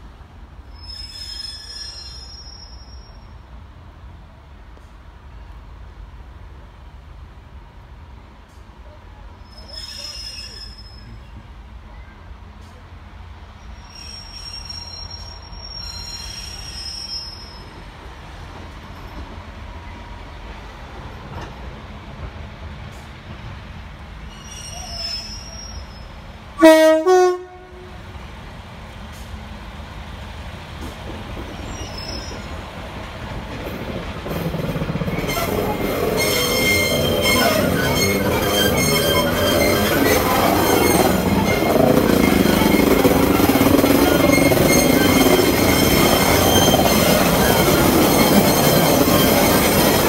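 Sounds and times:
train wheels squealing: 0.7 - 3.4, 9.4 - 12.2, 13.6 - 18.0, 24.3 - 26.3, 31.4 - 32.7, 34.2 - 50.0
train two-tone horn: 26.6 - 28.1.

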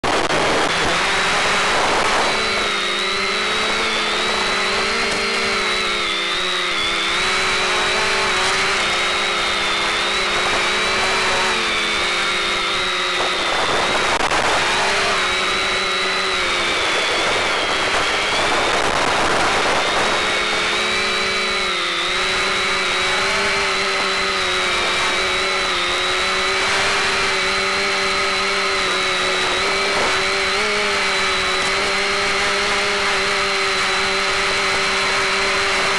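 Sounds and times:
quadcopter motors whining: 0.0 - 35.9.

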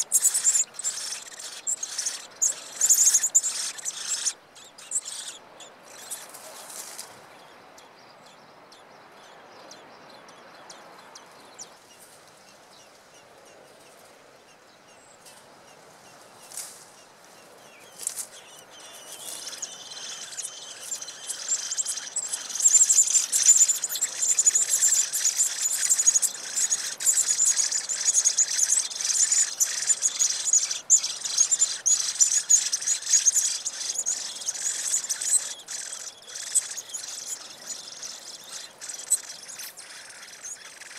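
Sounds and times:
nestlings cheeping: 0.0 - 6.3, 18.8 - 40.9.

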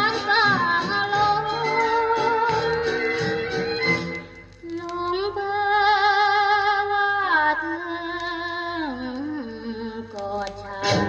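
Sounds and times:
woman singing on old record: 0.0 - 11.0.

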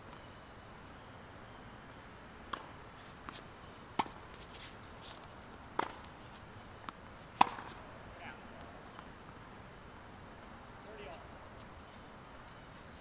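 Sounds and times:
tennis ball pocks: 2.5 - 6.2, 6.8 - 7.8.

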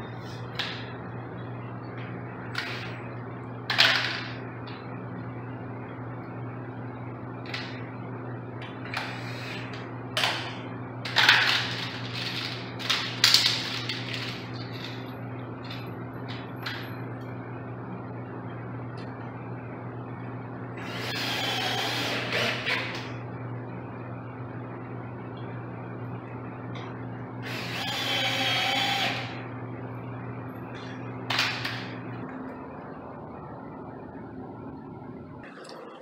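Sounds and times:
steady low hum: 0.0 - 36.0
cordless drill running: 20.8 - 23.0, 27.4 - 29.4.

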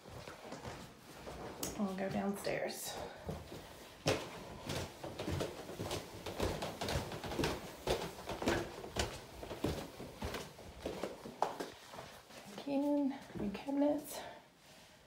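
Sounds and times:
footsteps on plank floor: 0.0 - 13.6
footsteps on carpeted stairs: 0.0 - 14.3.

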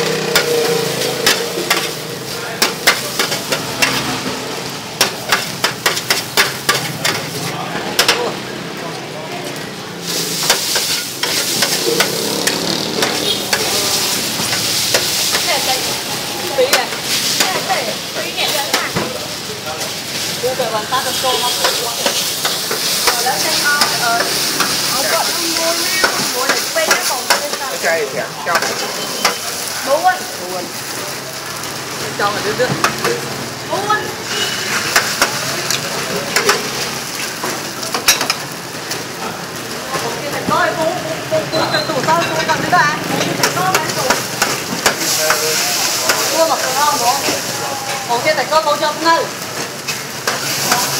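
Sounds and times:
metal spatula scraping griddle: 0.0 - 4.4, 10.0 - 18.8, 34.2 - 37.5
noodles sizzling on griddle: 0.0 - 50.9
metal spatula clicking on griddle: 1.2 - 2.0, 2.6 - 4.0, 5.0 - 7.3, 8.0 - 8.2, 10.4 - 13.7, 26.0 - 27.6, 43.4 - 45.4, 49.9 - 50.9.

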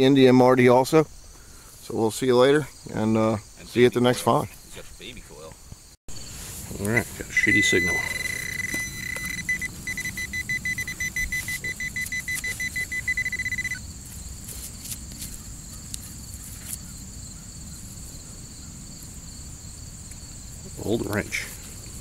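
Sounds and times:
crickets chirping: 0.0 - 22.0
metal detector beeping: 6.8 - 13.8.

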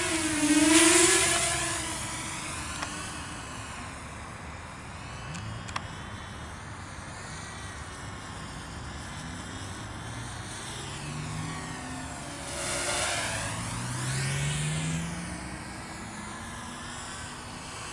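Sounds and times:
drone propeller whine: 0.0 - 17.9
low hum: 10.6 - 17.7.

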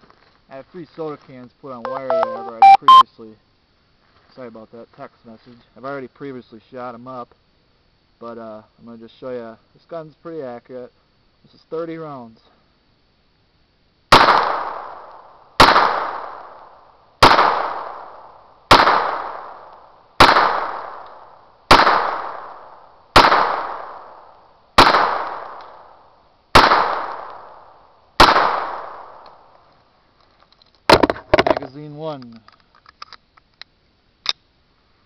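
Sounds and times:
pistol shots with echo: 20.2 - 21.0, 23.2 - 24.0, 28.2 - 29.2.

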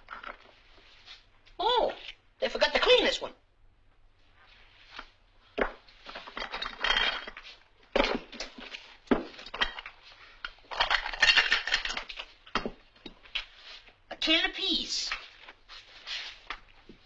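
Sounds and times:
kitchen things clinking and scraping: 6.0 - 13.8.

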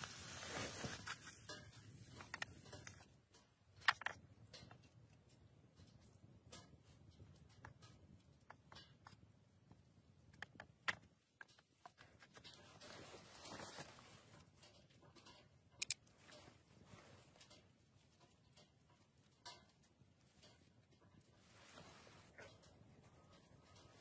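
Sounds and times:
soft hiss: 0.0 - 2.2
utensil clicks and taps: 1.6 - 12.6, 14.6 - 16.5.

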